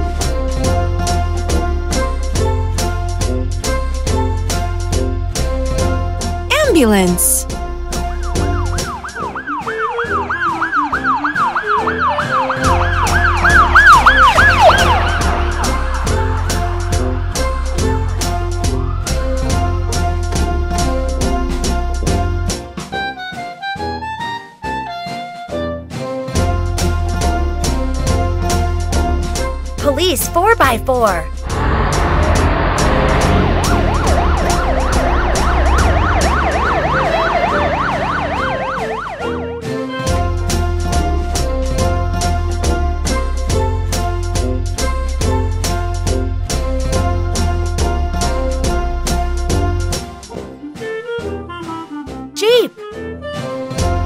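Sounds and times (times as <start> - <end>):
children's music with bass beat: 6.5 - 7.4, 29.8 - 31.3
ambulance siren yelping: 9.1 - 15.8, 33.6 - 39.5
police siren yelping: 33.6 - 39.5.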